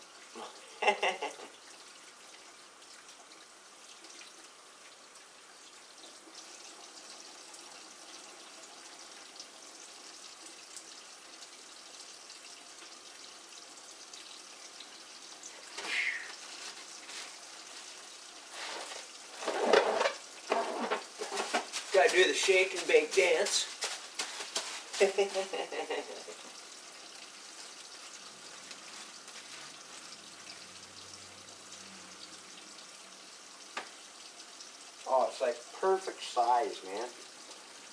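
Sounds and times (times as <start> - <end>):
water running into a sink: 0.2 - 37.9
plastic bag rustling: 18.5 - 25.7.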